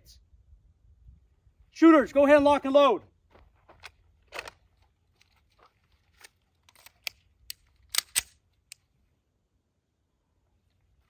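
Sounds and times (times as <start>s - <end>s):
pistol metallic clicks and scrapes: 3.8s - 8.9s.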